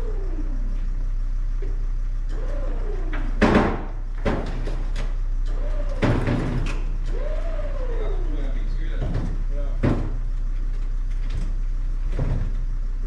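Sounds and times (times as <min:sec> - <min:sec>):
steady low hum: 0:00.0 - 0:13.0
knocks and clunks: 0:02.3 - 0:07.6, 0:08.8 - 0:12.7.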